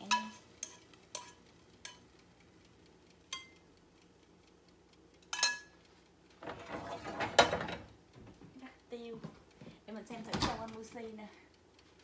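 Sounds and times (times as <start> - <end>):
chopsticks clinking on saucepan: 0.0 - 2.1, 3.3 - 3.6, 5.2 - 5.8.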